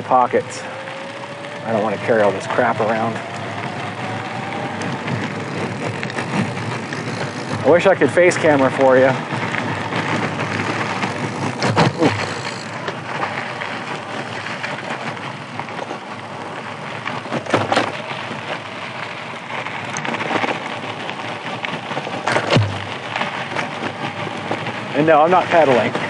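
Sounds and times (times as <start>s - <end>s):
tyres crunching on gravel: 0.0s - 26.0s
sharp knocks: 22.3s - 22.9s.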